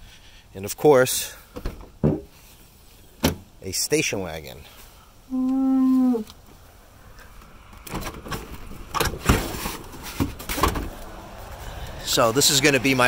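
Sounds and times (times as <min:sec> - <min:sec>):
person humming: 0:05.3 - 0:06.3.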